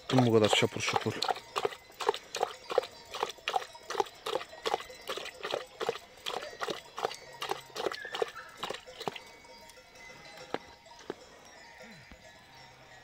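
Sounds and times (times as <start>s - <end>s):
dog lapping water: 0.0s - 9.3s.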